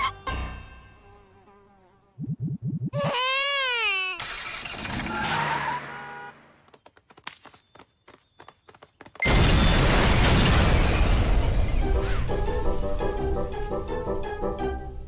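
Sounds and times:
low rubbery sputter: 2.1 - 3.1
loud explosion blast: 9.3 - 11.9.

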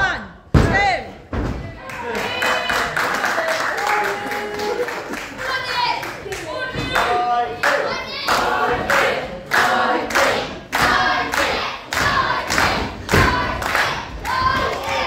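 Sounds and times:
rhythmic claps or stamps: 6.0 - 15.0
crowd chanting in unison: 6.5 - 15.0.

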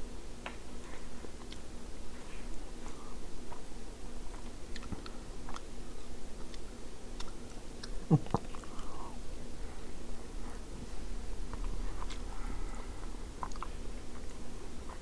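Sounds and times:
soft chewing: 0.4 - 15.0
mouth sounds: 7.2 - 9.2.

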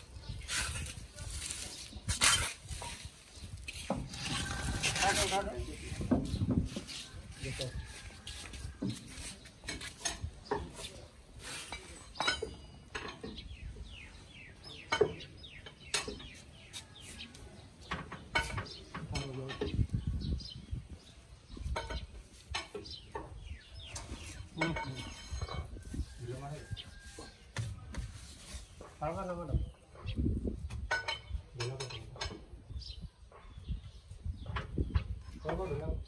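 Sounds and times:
hand tools clinking on metal: 9.6 - 13.6, 23.8 - 25.8.

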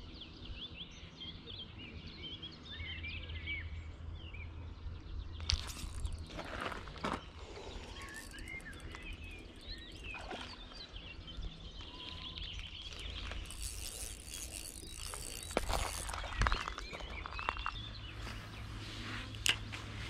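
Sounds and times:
songbirds chirping: 0.0 - 20.0
sharp clicks: 7.9 - 10.2.

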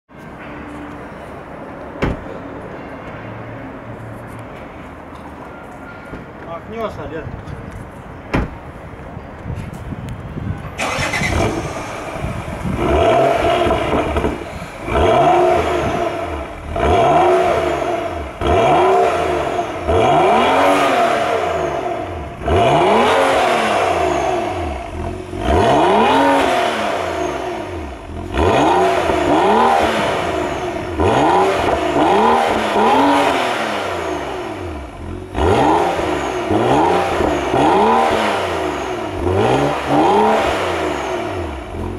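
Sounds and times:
car engine revving: 10.8 - 41.9.

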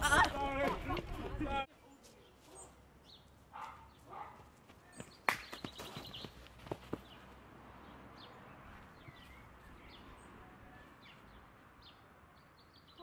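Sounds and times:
bird chirps: 4.9 - 7.2, 8.2 - 13.0.

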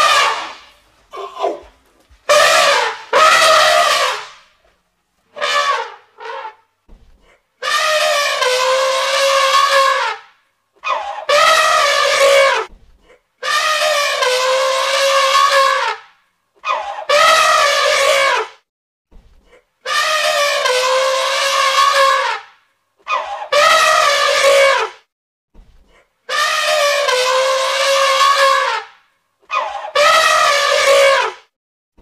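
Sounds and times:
elephants trumpeting: 0.0 - 1.7, 2.3 - 4.4, 5.3 - 6.6, 7.6 - 10.2, 10.8 - 12.7, 13.4 - 16.0, 16.6 - 18.5, 19.9 - 22.5, 23.1 - 24.9, 26.3 - 28.9, 29.5 - 31.4.

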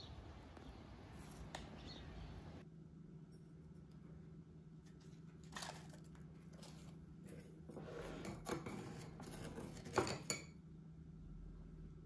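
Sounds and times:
food packet crinkling: 5.4 - 7.0.

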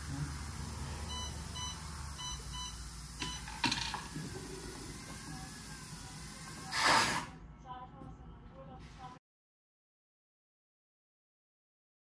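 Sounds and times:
electronic warning buzzer beeps: 1.0 - 3.8
burst of air hiss: 4.2 - 7.4.

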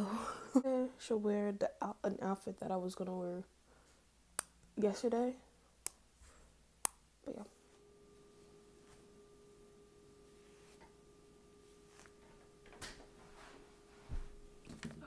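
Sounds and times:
faint steady hum: 0.0 - 15.0
hairbrush stroking hair: 10.1 - 11.0, 11.6 - 14.7.

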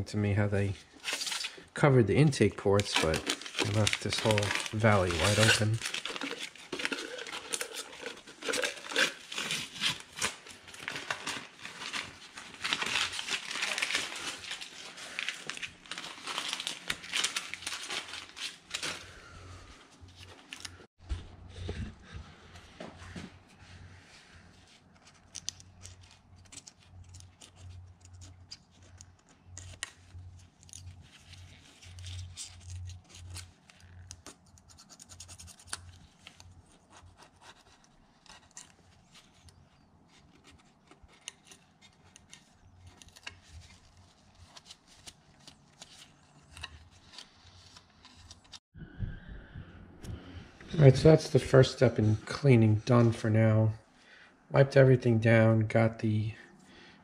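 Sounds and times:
paper towel rubbing and crinkling: 1.0 - 19.2.

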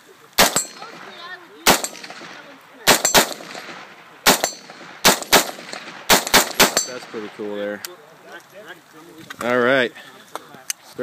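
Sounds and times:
rifle shots: 0.4 - 7.5.

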